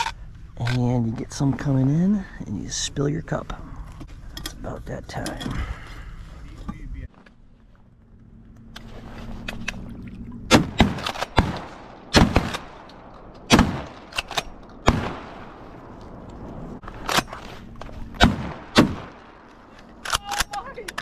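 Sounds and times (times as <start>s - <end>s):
shotgun shots echoing: 10.5s - 15.9s, 18.1s - 20.4s.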